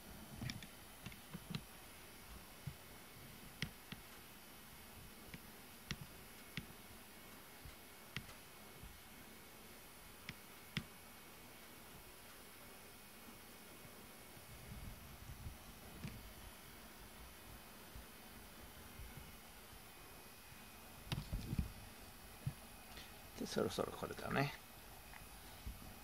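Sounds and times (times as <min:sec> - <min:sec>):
faint sharp clicks and ticks: 0:07.6 - 0:08.4.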